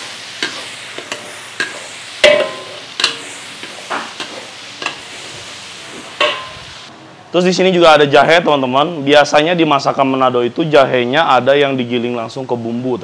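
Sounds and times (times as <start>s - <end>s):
paste sizzling: 0.0s - 6.9s
metal ladle clanking on wok: 0.4s - 3.3s, 6.2s - 6.7s.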